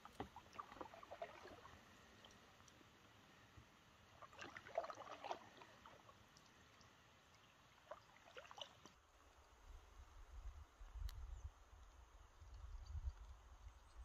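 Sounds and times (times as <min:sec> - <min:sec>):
water dripping from paddle: 0:00.0 - 0:03.2, 0:04.1 - 0:09.6.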